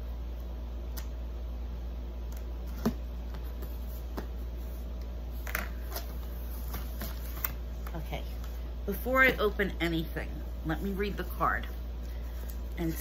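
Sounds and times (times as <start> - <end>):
steady low hum: 0.0 - 13.0
paper and cardboard rustling: 2.7 - 8.6.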